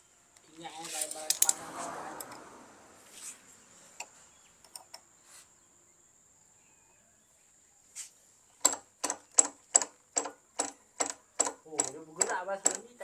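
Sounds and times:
sharp tool taps: 8.6 - 12.9.

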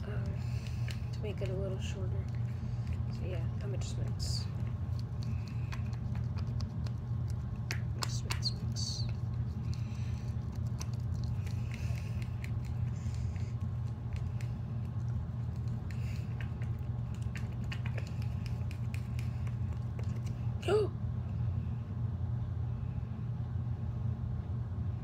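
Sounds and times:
low hum: 0.0 - 25.0
slime squelching: 0.2 - 20.4.

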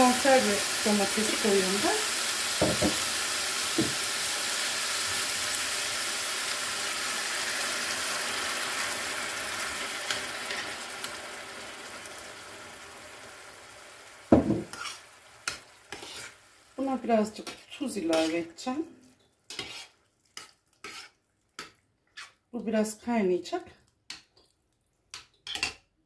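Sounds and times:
meat sizzling in a frying pan: 0.0 - 18.9.

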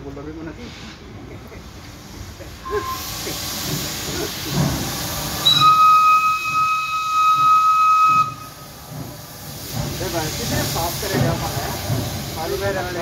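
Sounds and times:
steam locomotive hissing: 0.5 - 13.0
steam whistle blast: 2.6 - 3.1, 5.4 - 8.6.

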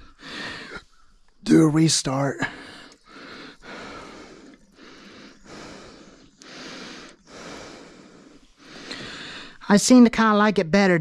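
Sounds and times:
man breathing heavily: 0.0 - 1.0, 2.4 - 9.6.

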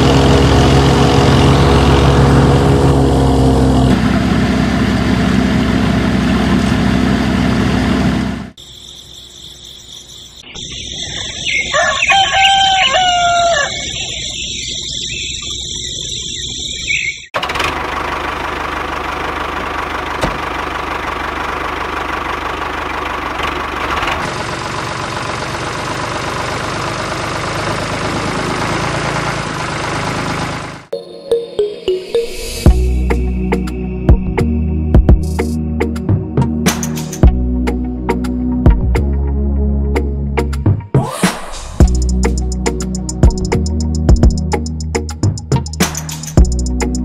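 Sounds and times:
rooster crowing: 11.0 - 14.3.

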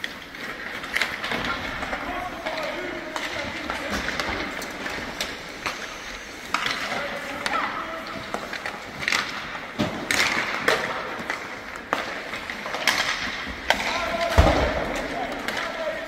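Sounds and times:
skate blades scraping ice: 0.0 - 14.3
hockey sticks and pucks clacking: 0.0 - 16.0.

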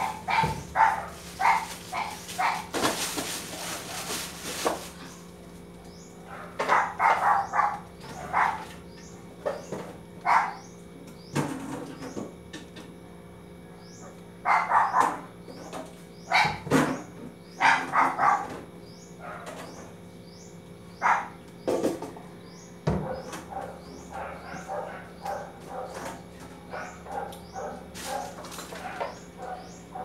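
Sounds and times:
dog barking: 0.0 - 2.7, 6.3 - 8.7, 10.2 - 10.6, 14.4 - 15.3, 16.3 - 16.7, 17.6 - 18.6, 19.2 - 19.6, 21.0 - 21.4, 23.0 - 26.1, 26.7 - 30.0
steady low hum: 0.0 - 30.0.

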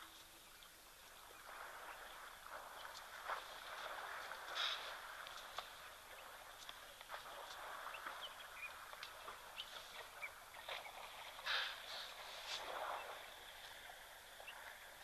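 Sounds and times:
high steady hiss: 0.0 - 15.0
bird chirps: 5.8 - 13.3.

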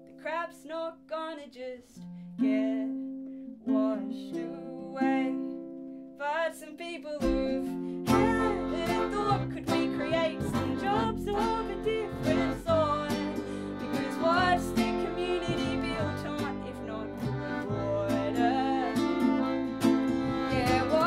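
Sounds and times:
accordion: 7.2 - 21.0
double bass: 7.2 - 21.0.

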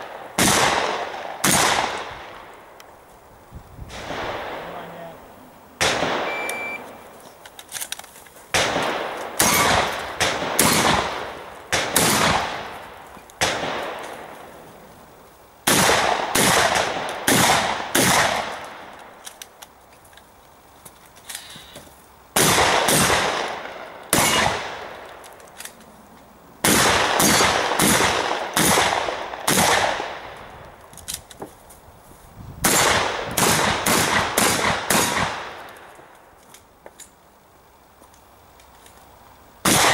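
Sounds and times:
shotgun shots echoing: 0.0 - 2.5, 3.9 - 5.1, 5.8 - 6.8, 8.5 - 14.3, 15.6 - 18.9, 22.4 - 25.0, 26.6 - 30.4, 32.6 - 35.8, 39.6 - 39.9.

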